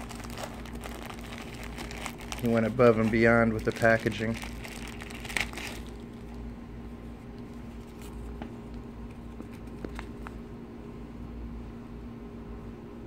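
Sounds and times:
plastic bag crinkling: 0.0s - 6.4s
steady low hum: 0.0s - 13.0s.

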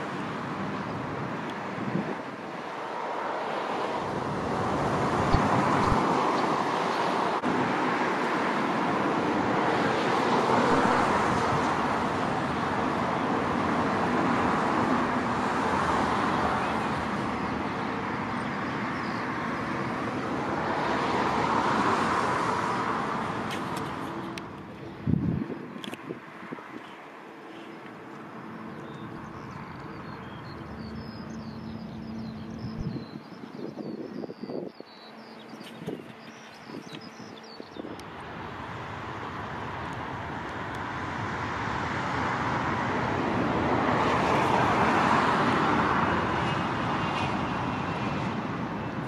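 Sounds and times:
jet engines roaring: 0.0s - 34.6s, 35.4s - 49.0s.

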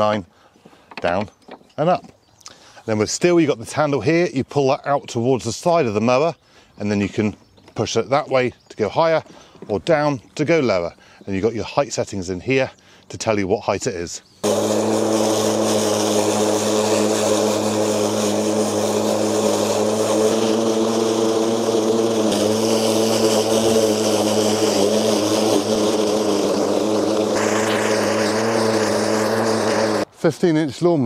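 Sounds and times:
hiss of cut grass: 14.4s - 30.1s
lawn mower humming: 14.4s - 30.1s.

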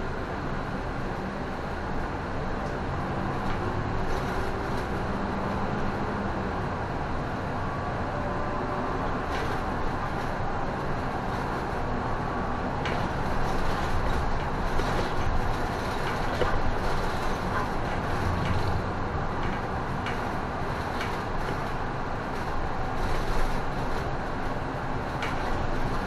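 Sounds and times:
bus engine and road noise: 0.0s - 26.0s.

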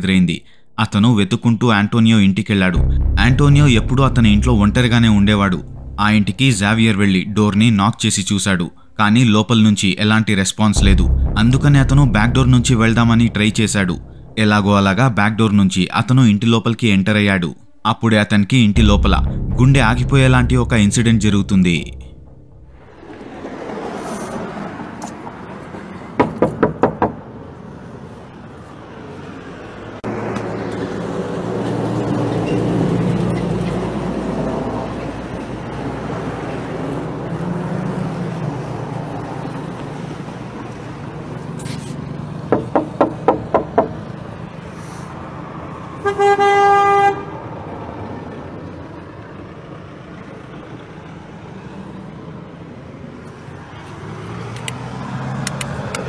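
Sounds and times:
street noise: 2.5s - 56.0s
car horn honking: 46.0s - 47.4s
sharp clicks: 55.4s - 56.0s.

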